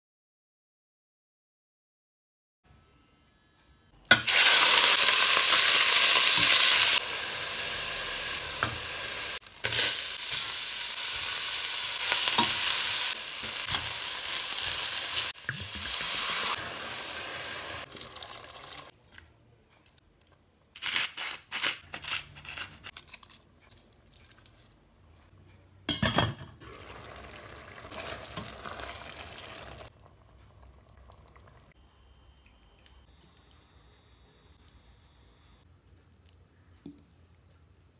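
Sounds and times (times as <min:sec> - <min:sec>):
food sizzling in hot oil: 0:04.1 - 0:18.9, 0:26.6 - 0:29.9.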